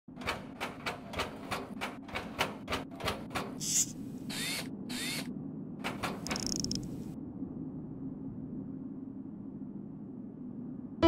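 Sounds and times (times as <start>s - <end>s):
rising servo whirs: 3.6s - 5.3s
low steady hum: 3.9s - 11.0s
robot clicking footsteps: 5.9s - 6.9s.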